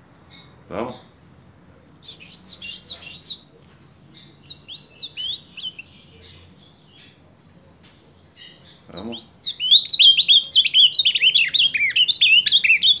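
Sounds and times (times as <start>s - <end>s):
bird singing whistled notes: 2.0s - 3.5s, 4.1s - 7.6s, 8.3s - 13.0s.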